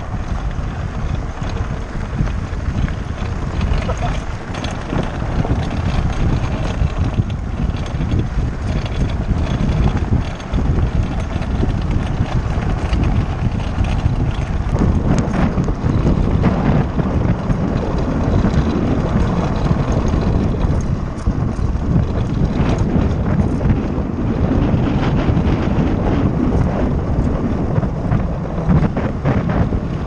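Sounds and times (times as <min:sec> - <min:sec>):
tyres crunching on gravel: 0:00.0 - 0:23.6
wind buffeting microphone: 0:00.0 - 0:30.0.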